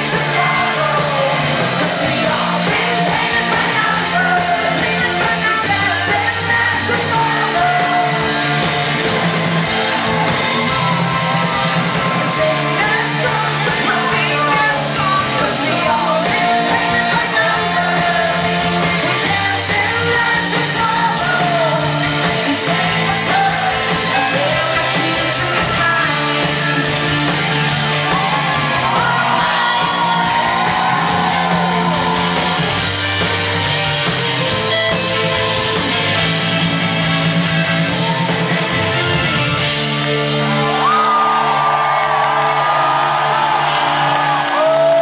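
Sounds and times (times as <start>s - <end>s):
female singer: 0.0s - 8.7s, 12.2s - 26.8s, 28.9s - 31.2s
bass: 0.0s - 45.0s
drums: 0.0s - 45.0s.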